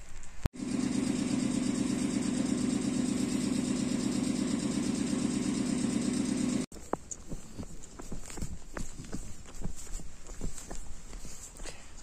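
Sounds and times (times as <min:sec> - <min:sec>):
electric railcar humming: 0:00.6 - 0:06.7.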